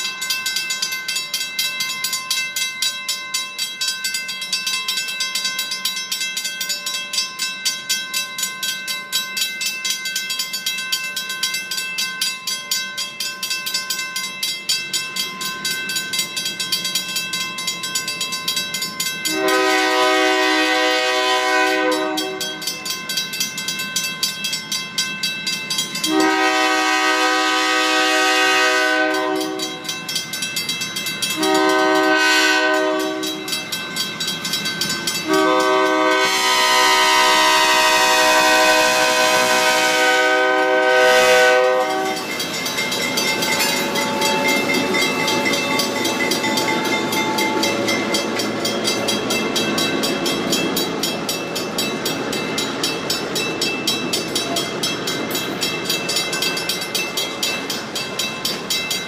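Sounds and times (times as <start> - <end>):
crossing signal bell ringing: 0.0 - 59.0
locomotive air horn blasts: 19.3 - 22.6, 26.1 - 29.8, 31.4 - 33.4, 35.2 - 42.2.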